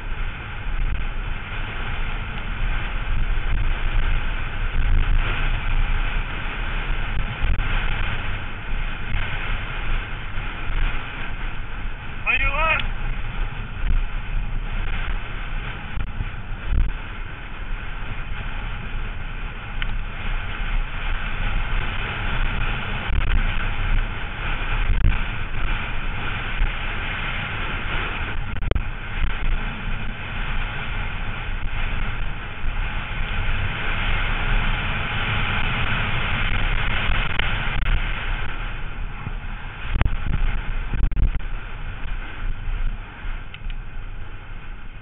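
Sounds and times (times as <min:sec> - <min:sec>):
bike tyres rumbling over dirt: 0:00.0 - 0:45.0
wind on microphone: 0:00.0 - 0:45.0.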